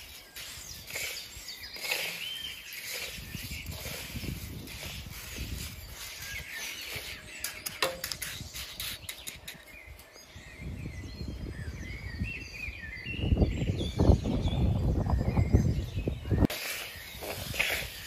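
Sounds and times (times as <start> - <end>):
grains rustling in metal pan: 0.0 - 8.5, 16.5 - 18.0
birds chirping: 0.0 - 18.0.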